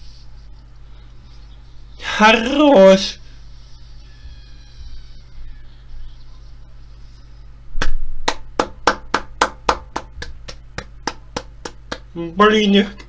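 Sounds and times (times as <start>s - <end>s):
faint low hum: 0.0s - 13.0s
person clapping hands: 7.8s - 12.2s.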